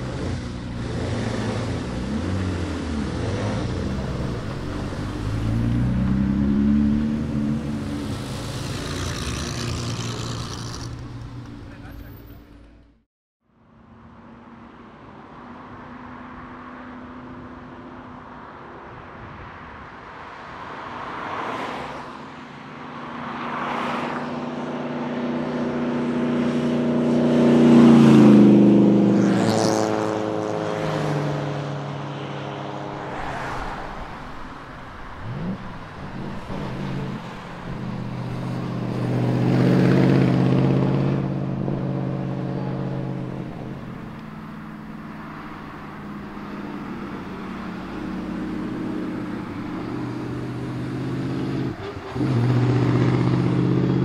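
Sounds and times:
vintage car engines passing: 0.0s - 13.0s, 22.6s - 54.0s.

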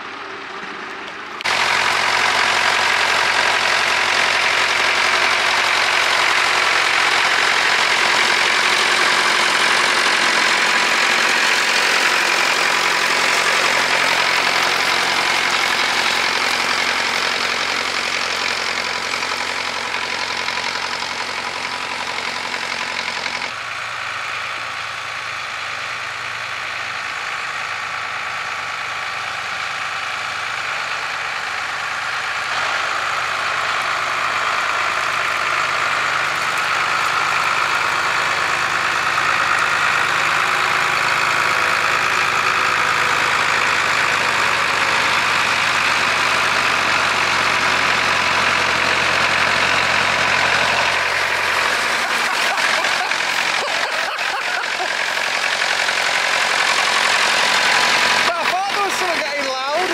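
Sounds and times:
tractor engine under load: 0.0s - 59.9s.

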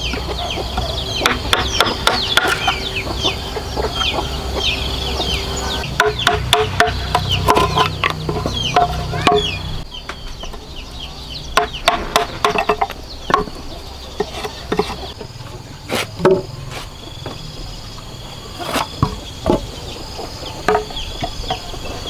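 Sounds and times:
chickens clucking: 0.0s - 22.0s
machete chopping bamboo: 1.2s - 2.8s, 5.9s - 9.5s, 11.6s - 13.6s.

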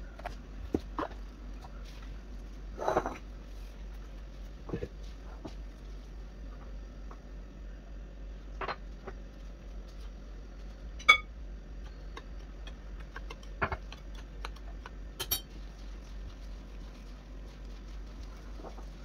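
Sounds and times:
spoon tapping glass bowl: 11.0s - 11.3s, 15.2s - 15.5s.

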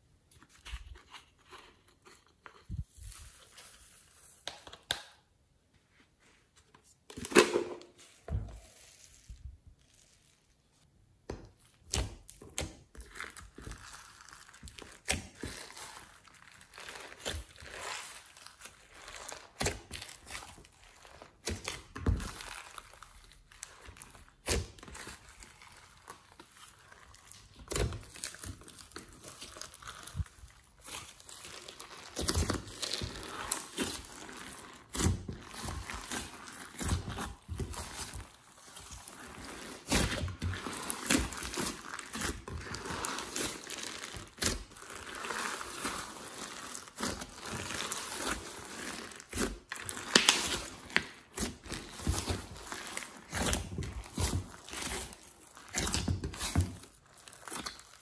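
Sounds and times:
slime squishing and crackling: 8.0s - 10.9s, 11.5s - 58.0s
loud slime squish: 11.6s - 58.0s.

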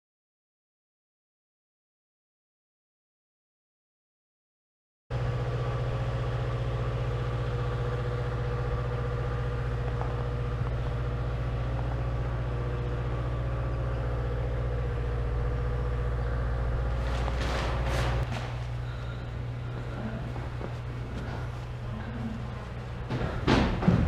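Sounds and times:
engine idling: 5.1s - 24.0s
short scuffing noise: 16.8s - 21.9s.

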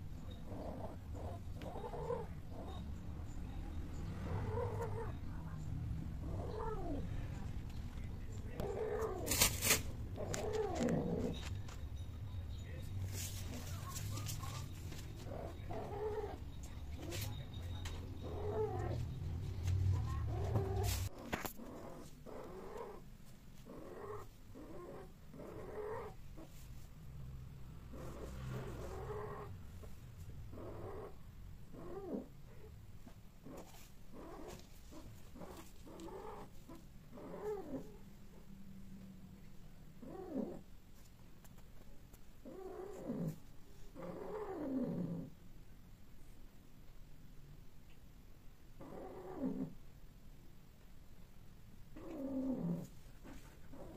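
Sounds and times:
cats moaning calls: 0.0s - 3.0s, 4.0s - 5.4s, 6.2s - 7.2s, 8.6s - 11.5s, 13.8s - 26.6s, 27.7s - 29.7s, 30.4s - 32.8s, 33.4s - 38.6s, 40.0s - 40.7s, 42.4s - 45.4s, 48.8s - 49.8s, 52.0s - 53.9s
cat yowling: 6.2s - 7.0s.

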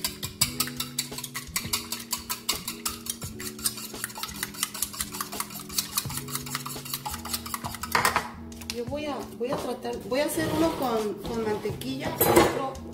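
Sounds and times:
whisk beating eggs in bowl: 0.0s - 8.0s.

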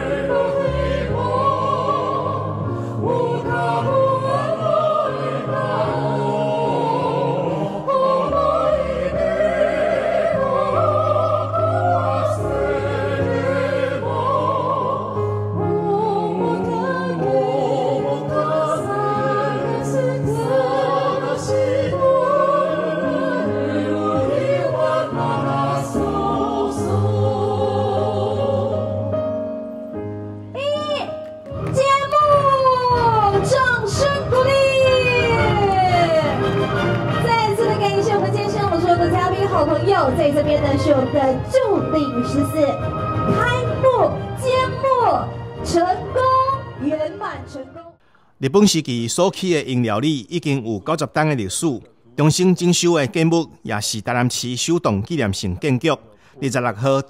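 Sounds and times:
vocal quartet singing in harmony: 0.0s - 29.9s.

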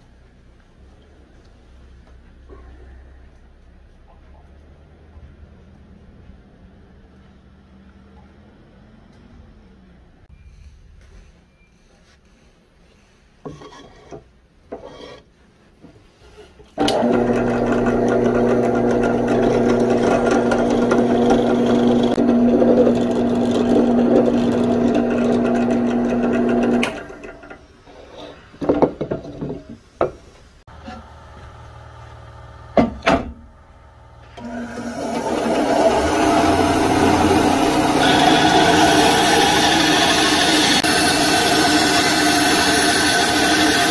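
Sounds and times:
drill press boring into wood: 16.8s - 27.4s, 34.4s - 43.9s
faint motor hum: 30.7s - 43.9s.

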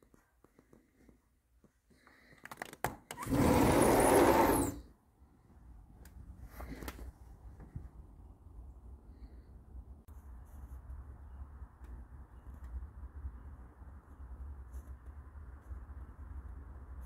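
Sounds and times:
sliding glass door rolling: 3.2s - 4.8s.

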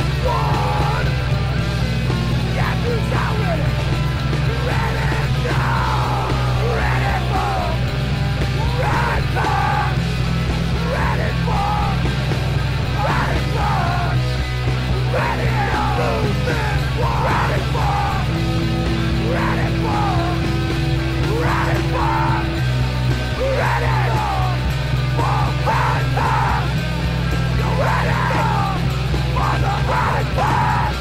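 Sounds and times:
loud music with heavy bass: 0.0s - 31.0s
person yelling: 8.7s - 10.0s, 10.8s - 12.0s, 15.1s - 18.4s, 19.2s - 20.5s, 21.2s - 22.6s, 23.4s - 26.7s, 27.6s - 31.0s.

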